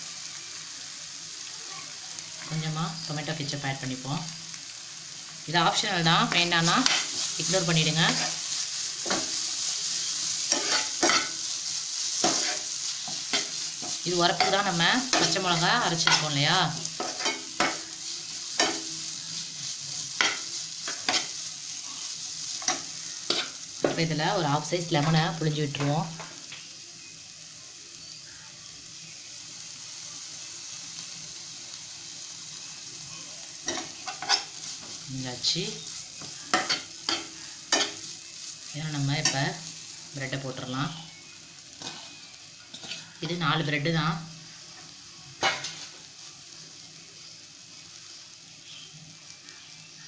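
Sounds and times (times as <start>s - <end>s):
frying sizzle: 0.0s - 50.0s
spatula scraping a pan: 6.3s - 21.5s, 33.6s - 35.0s, 41.8s - 43.4s.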